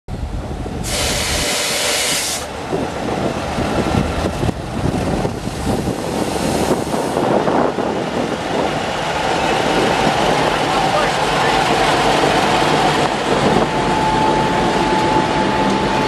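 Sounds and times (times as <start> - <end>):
diesel locomotive engine: 0.1 - 16.0
wheel and rail noise: 0.1 - 16.0
compressed air hissing: 0.8 - 2.5.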